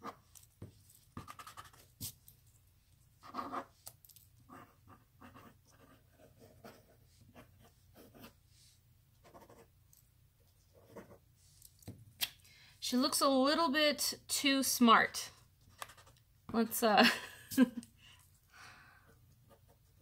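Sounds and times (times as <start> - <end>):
pencil scratching on paper: 0.0 - 2.2, 3.2 - 3.8, 4.5 - 9.7, 10.6 - 11.2.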